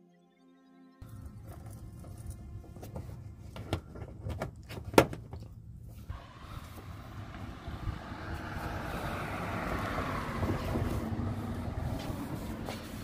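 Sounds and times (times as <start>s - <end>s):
wind on microphone: 6.2s - 12.9s.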